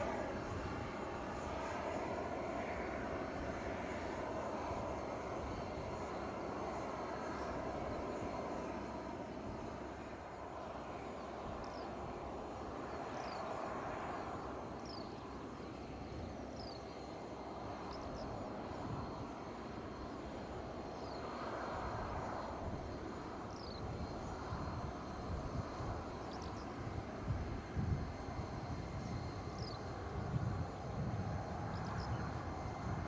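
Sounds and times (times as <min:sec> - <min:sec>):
jet engines idling: 0:00.0 - 0:33.0.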